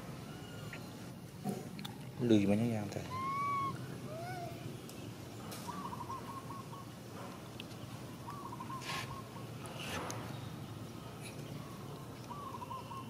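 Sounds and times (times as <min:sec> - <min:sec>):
bird hooting: 0:03.1 - 0:04.6, 0:05.7 - 0:06.9.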